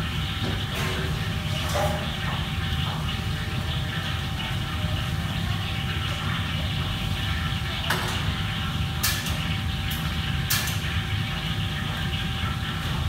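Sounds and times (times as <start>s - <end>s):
metal utensils and trays clattering: 0.8s - 2.2s, 9.0s - 10.9s.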